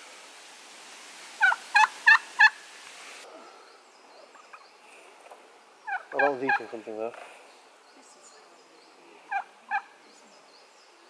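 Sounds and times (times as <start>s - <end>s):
turkey calling: 1.4s - 2.6s, 5.8s - 6.9s, 9.3s - 10.0s.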